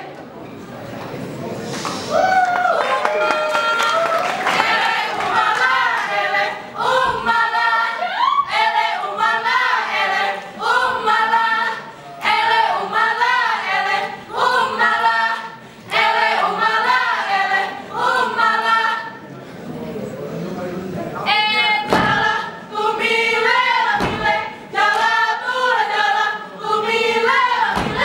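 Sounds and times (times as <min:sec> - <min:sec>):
group chanting unaccompanied: 0:03.7 - 0:19.3, 0:21.2 - 0:28.0.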